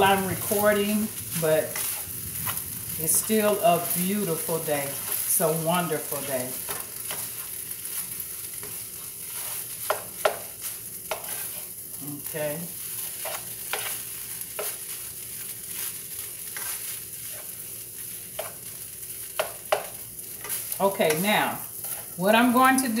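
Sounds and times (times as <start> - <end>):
food sizzling in a skillet: 0.0 - 23.0
utensil scraping and tapping pan: 9.4 - 10.5, 11.1 - 11.7, 13.2 - 14.0, 14.6 - 14.8, 19.4 - 21.2.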